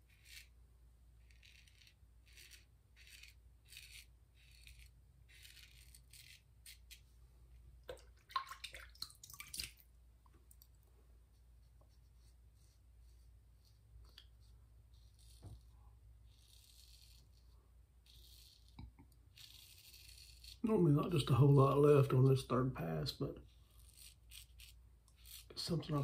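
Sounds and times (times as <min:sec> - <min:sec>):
razor scraping stubble: 0:00.0 - 0:00.5, 0:01.2 - 0:07.0, 0:12.6 - 0:22.4, 0:23.0 - 0:26.0.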